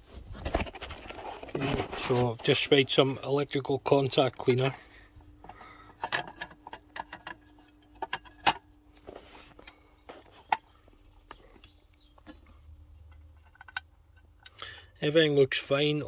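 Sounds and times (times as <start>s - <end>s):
faint steady hum: 0.0s - 16.0s
clicks and knocks of handling: 5.4s - 14.9s.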